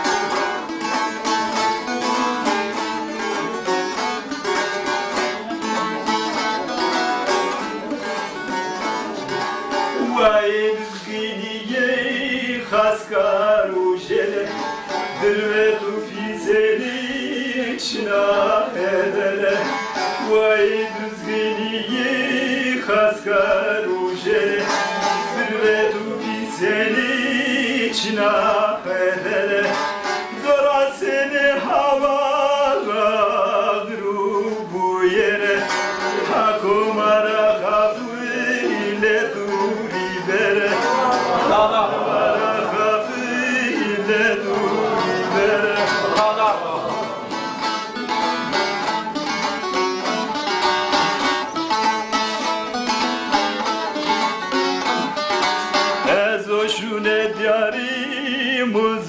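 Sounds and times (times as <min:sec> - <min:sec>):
plucked lute: 0:00.0 - 0:59.0
person singing a hymn: 0:09.2 - 0:47.3, 0:56.0 - 0:59.0.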